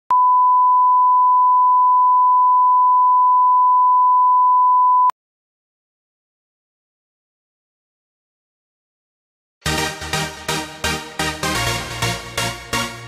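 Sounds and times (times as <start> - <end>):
steady test tone beep: 0.1 - 5.1.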